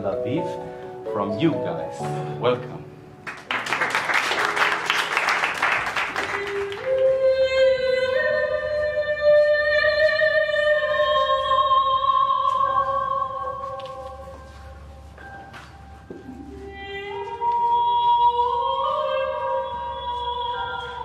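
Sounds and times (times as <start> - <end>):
applause: 3.2 - 7.1.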